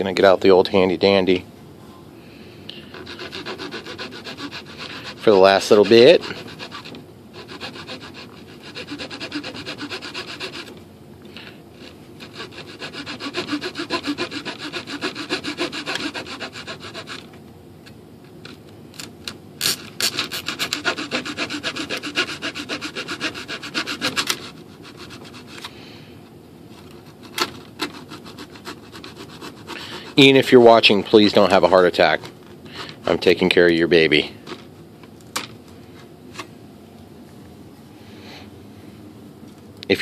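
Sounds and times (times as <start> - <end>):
hand saw rasping through wood: 3.0 - 10.8, 11.8 - 17.3, 19.6 - 25.7, 27.1 - 32.2.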